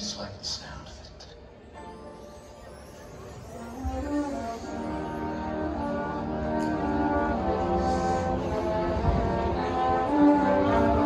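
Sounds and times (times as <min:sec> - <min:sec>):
brass chords: 0:01.5 - 0:11.0.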